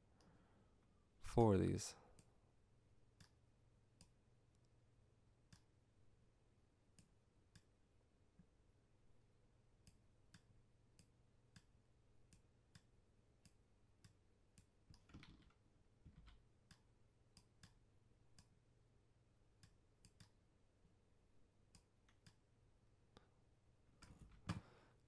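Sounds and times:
computer mouse clicks: 0:19.6 - 0:20.4, 0:21.7 - 0:22.4.

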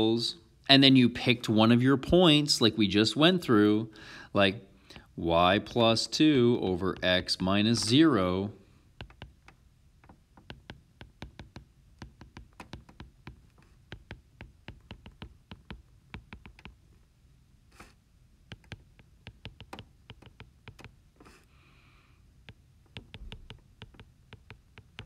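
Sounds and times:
stylus tapping on tablet screen: 0:08.9 - 0:17.0, 0:18.5 - 0:21.4, 0:22.4 - 0:25.0.

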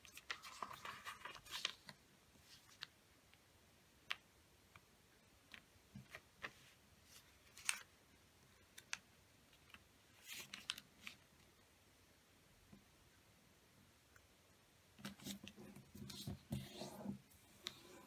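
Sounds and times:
paper crinkling: 0:00.0 - 0:02.9, 0:06.4 - 0:07.9, 0:08.7 - 0:11.2
paper rustling: 0:00.0 - 0:02.9, 0:05.5 - 0:07.9, 0:08.7 - 0:11.2.

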